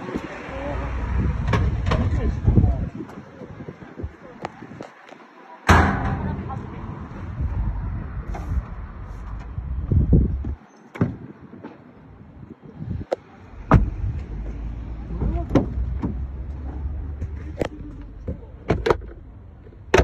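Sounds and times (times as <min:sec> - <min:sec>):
low rumbling handling noise: 0:05.7 - 0:20.0
car door clicks and knocks: 0:13.7 - 0:14.0, 0:18.3 - 0:19.2
car door thump: 0:13.7 - 0:14.0.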